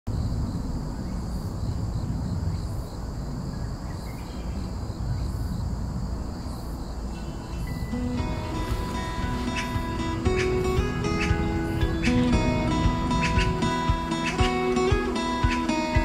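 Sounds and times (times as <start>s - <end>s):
faint high-pitched ringing: 6.3s - 13.8s
low rumble: 7.5s - 14.8s.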